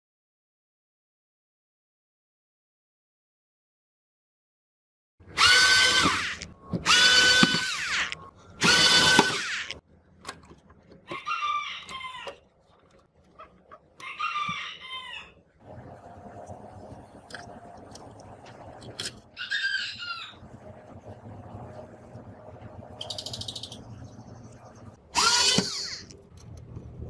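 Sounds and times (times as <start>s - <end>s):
cordless screwdriver whining: 5.4s - 9.8s, 25.2s - 26.1s.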